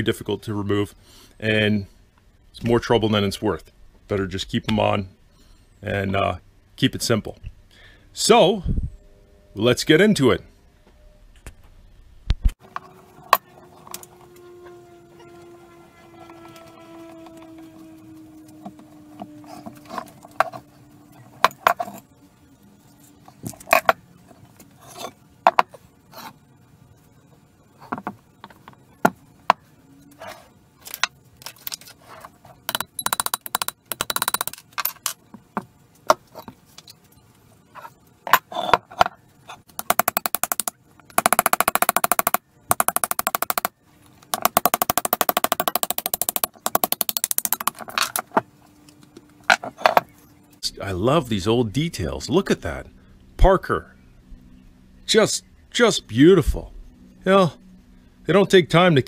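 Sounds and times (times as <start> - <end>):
hammer tapping pin punch: 39.8 - 43.7, 44.3 - 47.8.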